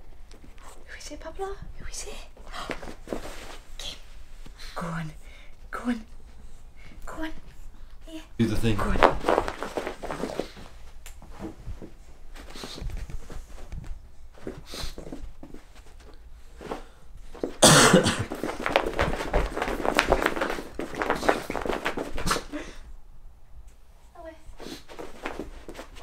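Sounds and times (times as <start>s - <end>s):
paw steps clicking on carpet: 8.8s - 22.6s, 24.6s - 26.0s.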